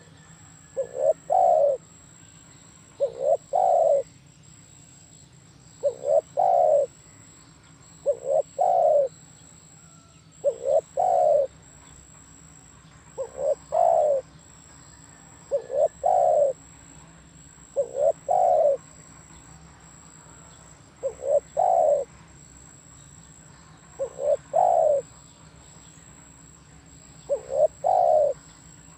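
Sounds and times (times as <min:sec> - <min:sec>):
dove cooing: 0:00.0 - 0:02.0, 0:02.9 - 0:04.1, 0:05.8 - 0:07.0, 0:08.0 - 0:11.7, 0:13.2 - 0:14.3, 0:15.4 - 0:16.7, 0:17.6 - 0:18.9, 0:20.3 - 0:22.1, 0:24.0 - 0:25.2, 0:27.2 - 0:28.6.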